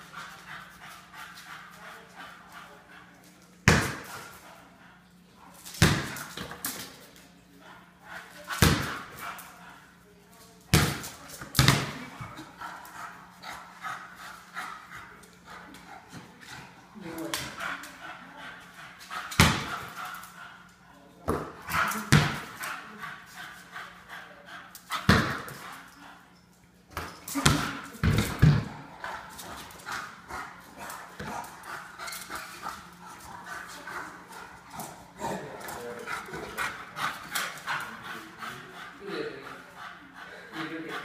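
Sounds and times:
basketball thumping on tile: 3.7 - 4.2, 5.7 - 6.7, 8.6 - 9.2, 10.7 - 12.4, 19.3 - 19.9, 21.3 - 22.6, 25.1 - 25.7, 26.9 - 28.8.

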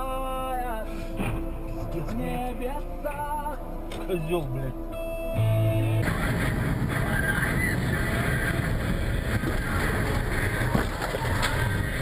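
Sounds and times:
car engine rumble: 0.0 - 12.0
tyre noise on wet street: 6.0 - 12.0.

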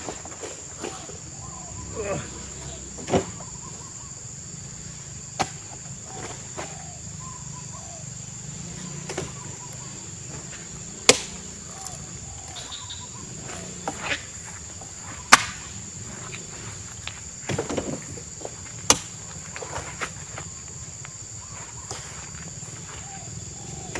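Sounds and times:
high-pitched insect drone: 0.0 - 17.4
fruit bunches knocking into truck bed: 15.2 - 15.8.

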